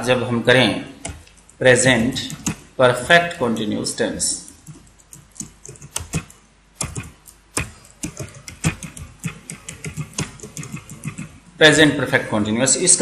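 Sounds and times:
typing on keyboard: 0:01.0 - 0:02.6, 0:04.4 - 0:11.4.

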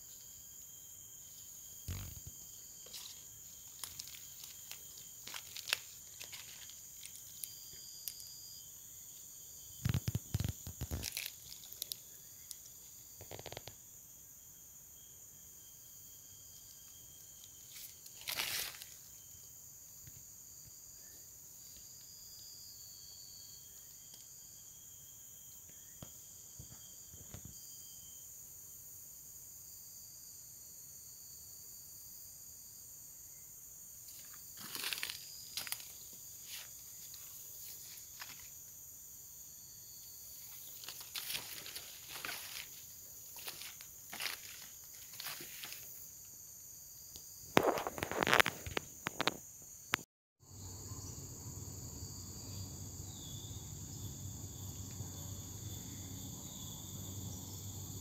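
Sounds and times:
insects calling: 0:00.0 - 0:58.0
rustling or knocking: 0:40.5 - 0:45.9.

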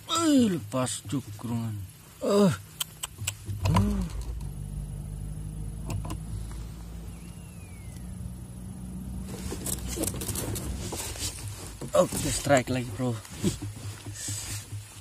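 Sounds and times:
low engine drone: 0:03.0 - 0:12.0.

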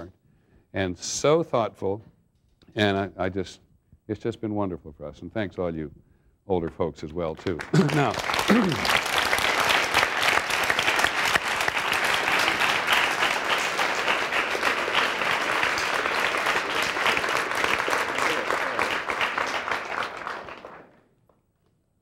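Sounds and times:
children applauding: 0:07.6 - 0:21.0.

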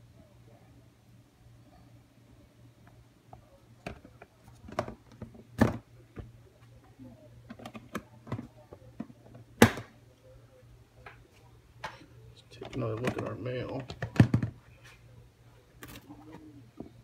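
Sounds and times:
handling clicks and knocks: 0:12.6 - 0:14.6.

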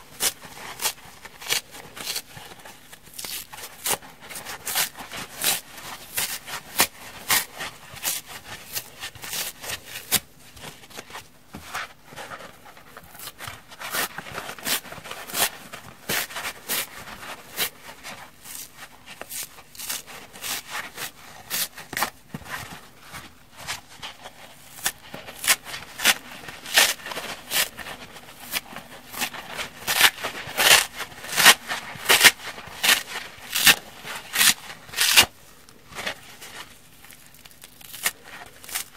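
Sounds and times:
scouring pad tearing off sponge: 0:24.7 - 0:35.3.

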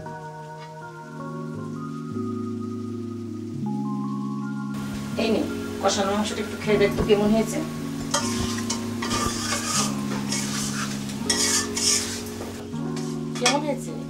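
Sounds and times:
soft background music: 0:00.0 - 0:14.0
food sizzling: 0:00.1 - 0:14.0
metal spatula scraping pan: 0:08.0 - 0:13.7.

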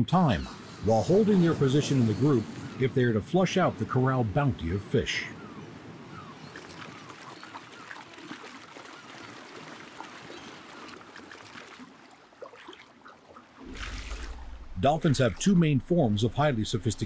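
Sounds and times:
shallow water sloshing and splashing: 0:05.4 - 0:16.8.

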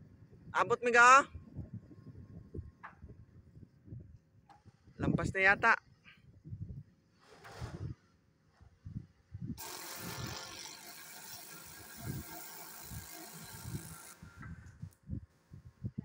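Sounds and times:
wind rumbling on microphone: 0:00.0 - 0:10.4, 0:11.8 - 0:16.0
high-pressure spray jet hissing: 0:09.6 - 0:14.4.

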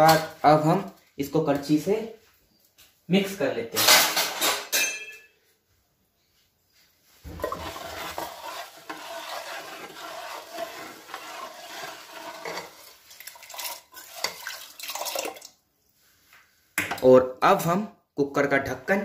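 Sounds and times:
ladle scraping pot: 0:07.2 - 0:15.4.

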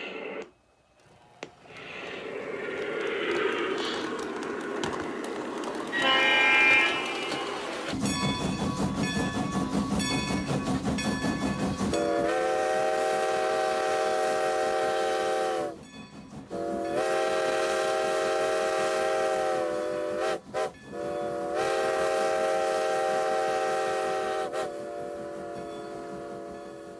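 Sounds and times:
locomotive air horn: 0:05.9 - 0:07.8, 0:12.0 - 0:15.8, 0:16.5 - 0:26.9
locomotive bell ringing: 0:05.9 - 0:12.2, 0:25.6 - 0:26.9.

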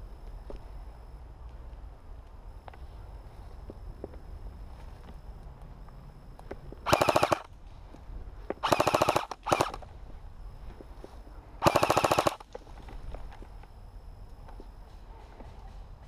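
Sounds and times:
airsoft rifle full-auto bursts: 0:06.8 - 0:07.5, 0:08.6 - 0:09.8, 0:11.6 - 0:12.5.

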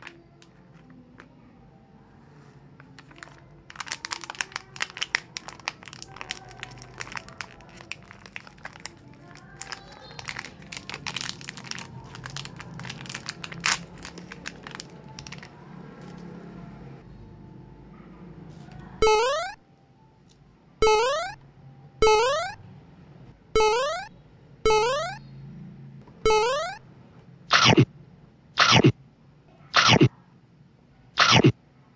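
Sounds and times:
plastic wrapper crinkling: 0:02.8 - 0:16.2.

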